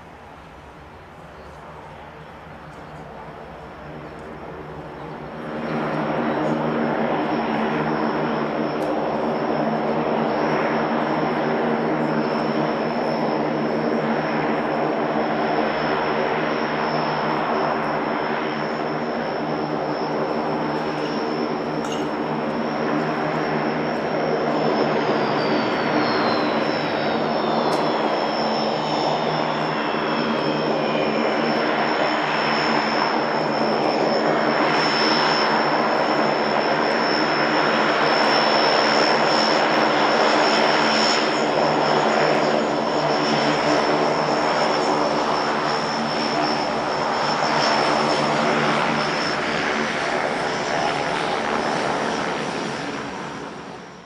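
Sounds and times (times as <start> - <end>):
faint turbine whine falling in pitch: 0.0 - 54.0
turboprop engines running: 0.0 - 54.0.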